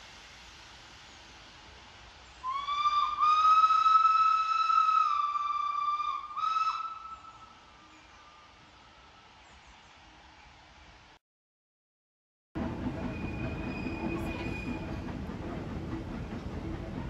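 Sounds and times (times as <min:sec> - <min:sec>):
steam locomotive whistle: 0:02.4 - 0:07.6, 0:13.0 - 0:15.1.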